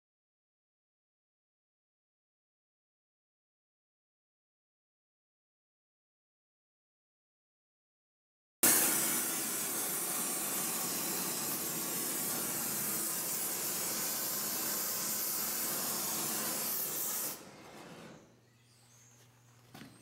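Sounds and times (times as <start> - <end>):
torch flame hissing: 8.6 - 18.3.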